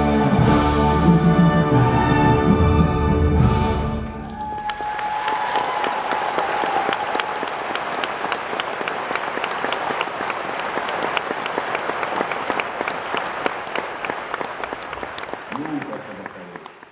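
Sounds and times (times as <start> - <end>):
audience applauding: 4.2 - 16.9.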